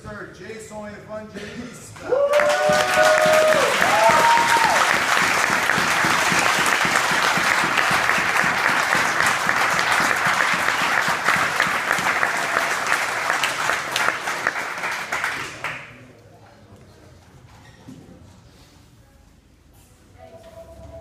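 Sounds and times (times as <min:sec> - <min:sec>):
audience clapping: 0:02.0 - 0:16.0.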